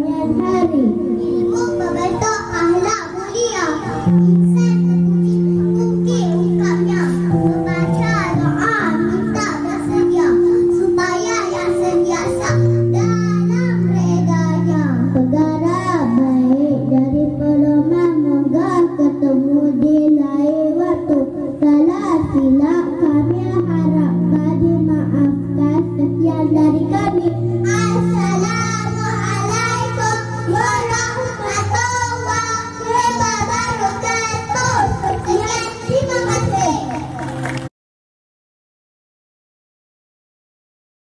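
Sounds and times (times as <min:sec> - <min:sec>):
backing music: 0:00.0 - 0:37.7
girls singing into microphone: 0:24.4 - 0:36.5.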